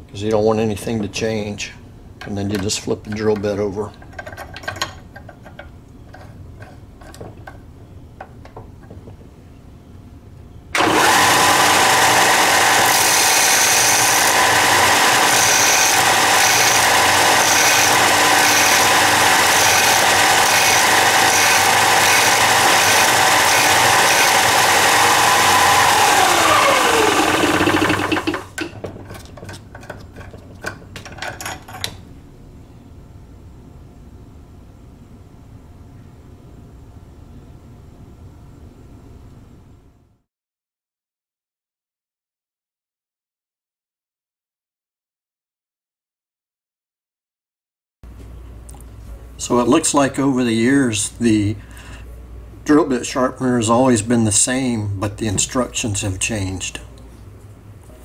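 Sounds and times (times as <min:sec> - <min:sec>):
motor whining down: 0:10.8 - 0:28.5
belt sander grinding: 0:10.8 - 0:28.6.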